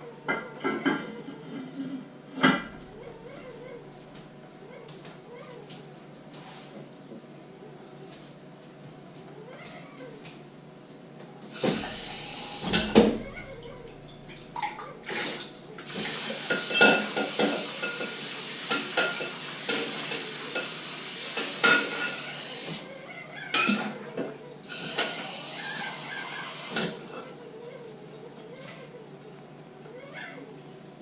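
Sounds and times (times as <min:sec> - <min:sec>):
dishes clattering in metal sink: 0:00.3 - 0:01.7, 0:02.4 - 0:03.0, 0:11.6 - 0:22.8, 0:23.6 - 0:25.4, 0:26.5 - 0:27.3
tap water running: 0:11.5 - 0:22.9, 0:24.7 - 0:27.0.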